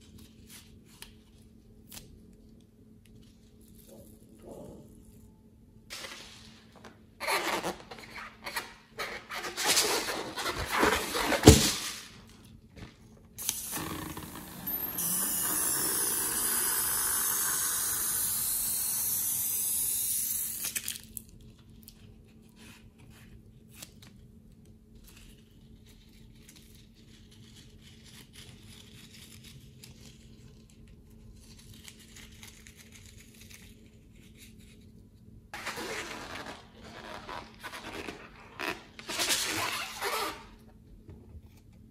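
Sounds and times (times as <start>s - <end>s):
steady hiss: 14.7s - 20.8s.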